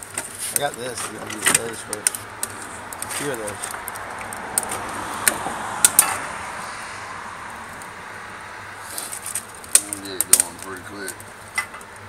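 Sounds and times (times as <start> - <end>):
fire draft rushing hiss: 4.8 - 11.0.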